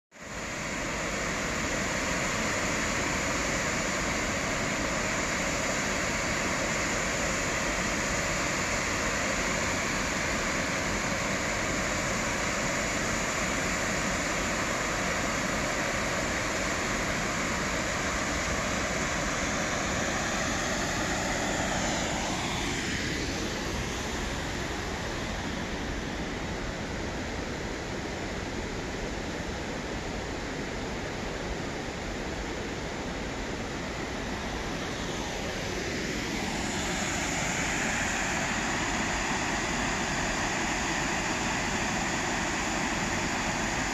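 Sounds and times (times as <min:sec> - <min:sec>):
waterfall rushing: 0:34.8 - 0:43.9.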